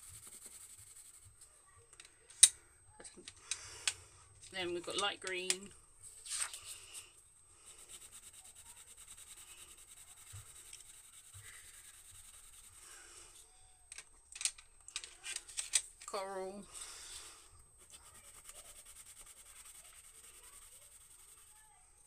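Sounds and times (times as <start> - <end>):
pencil scratching on paper: 0.0 - 1.4, 7.6 - 13.4, 17.8 - 21.8.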